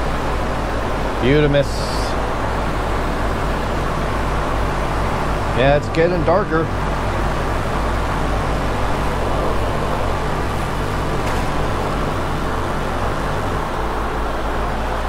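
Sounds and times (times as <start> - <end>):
ventilation fan running: 0.0 - 15.0.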